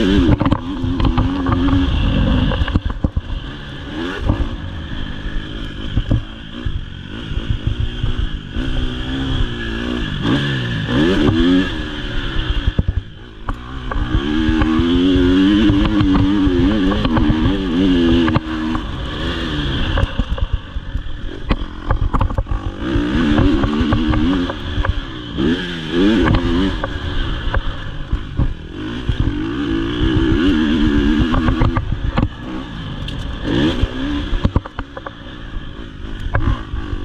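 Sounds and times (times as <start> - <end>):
bike clattering over rough track: 0.0 - 4.6, 12.6 - 35.5
motocross bike engine revving: 0.0 - 37.0.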